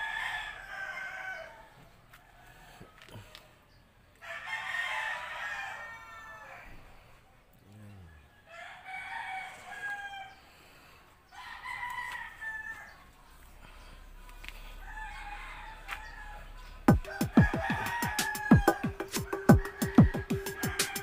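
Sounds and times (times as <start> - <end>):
rooster crowing: 0.0 - 3.1, 4.2 - 7.0, 8.1 - 10.5, 11.3 - 21.0
music with drum beat: 16.9 - 21.0.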